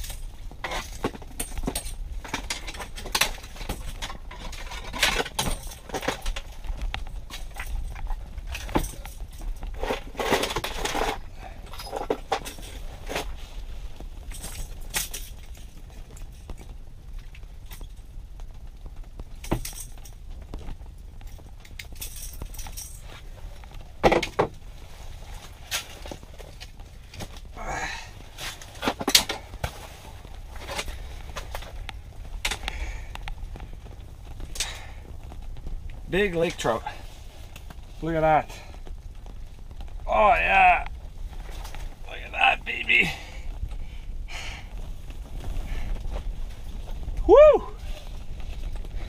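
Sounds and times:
rustling: 0.0 - 49.0.

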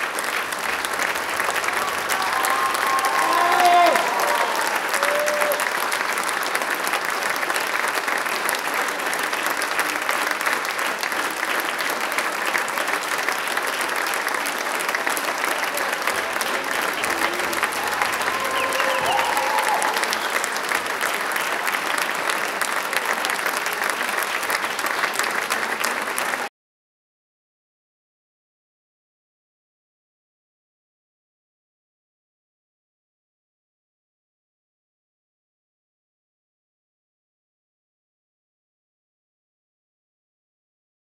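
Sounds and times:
audience applauding: 0.0 - 26.5
voices calling out: 15.9 - 20.6.

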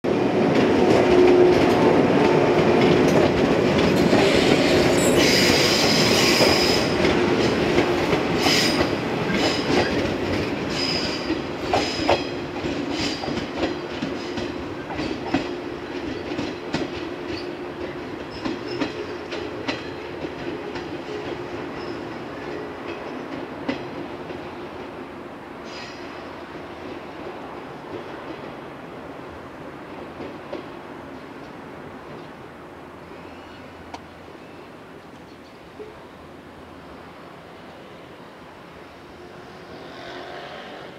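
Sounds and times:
wheels clacking over rail joints: 0.4 - 25.0.

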